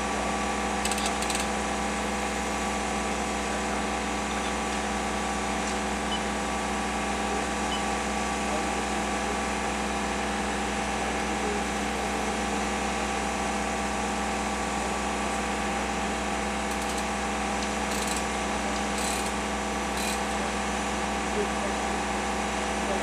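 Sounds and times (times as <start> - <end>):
engine running steadily: 0.0 - 23.0
chain hoist ratcheting clicks: 0.8 - 1.5, 16.7 - 17.1, 17.9 - 18.3, 18.9 - 20.3.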